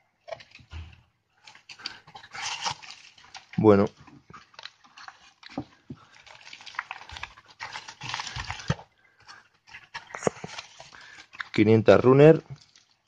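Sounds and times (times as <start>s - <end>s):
cardboard rustling and scraping: 9.8s - 10.9s.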